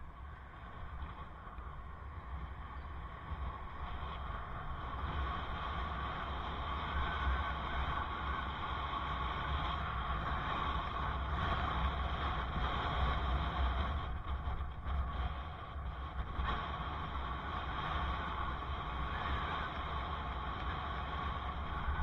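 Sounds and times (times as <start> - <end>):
bicycle road noise: 0.0 - 22.0
wind rumble on microphone: 0.0 - 22.0.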